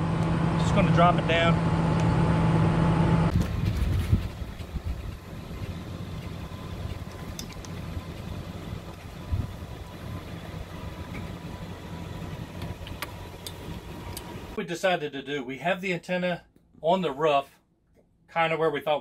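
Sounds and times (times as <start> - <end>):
low uneven rumble: 0.0 - 14.6.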